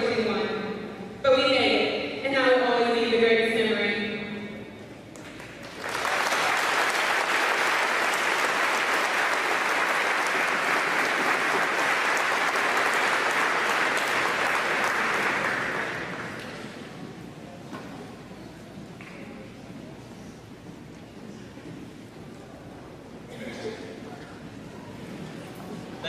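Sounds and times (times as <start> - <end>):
audience applauding: 5.2 - 16.8.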